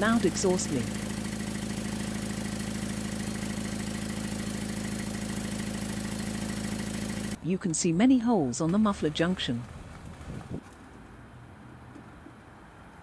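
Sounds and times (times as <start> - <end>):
car engine idling: 0.0 - 7.4
exhaust leak puffing: 0.0 - 7.4.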